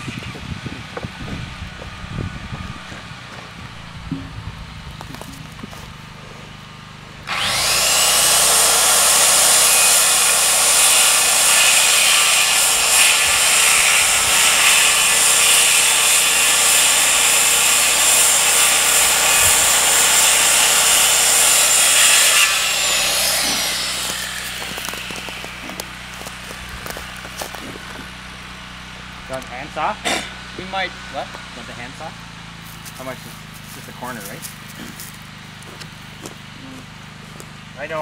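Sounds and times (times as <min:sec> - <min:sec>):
circular saw cutting wood: 0:07.2 - 0:32.2.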